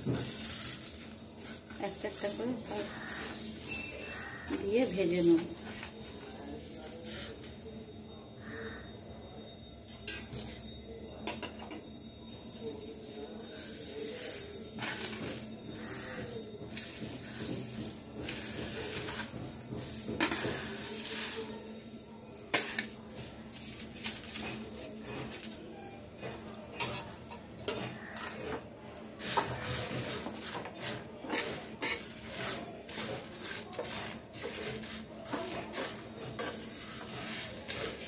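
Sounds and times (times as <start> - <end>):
spices rattling into a pan: 0.0 - 7.5, 13.6 - 21.8, 26.3 - 38.0
spatula scraping a pan: 0.2 - 6.1, 13.5 - 23.0, 29.2 - 38.0
dry rustle of seeds: 0.4 - 7.6, 13.5 - 21.7, 29.2 - 36.0.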